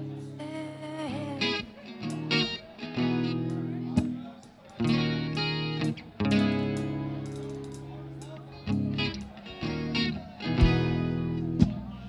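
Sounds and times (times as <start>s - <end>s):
guitars strumming chords: 0.0s - 12.0s.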